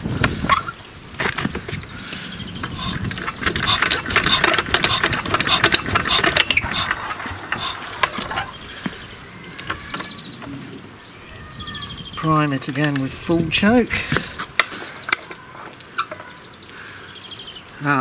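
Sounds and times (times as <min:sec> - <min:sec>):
engine cranking by hand: 0:02.6 - 0:08.9.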